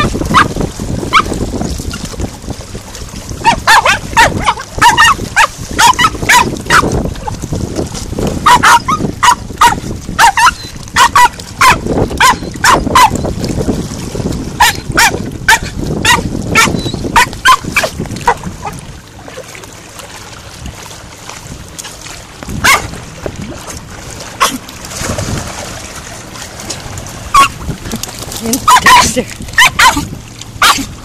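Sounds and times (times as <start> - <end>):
small dog yapping: 3.4 - 6.9, 8.4 - 13.2, 14.6 - 18.4, 22.6 - 22.9, 24.4 - 24.6, 27.3 - 27.6, 28.6 - 30.9.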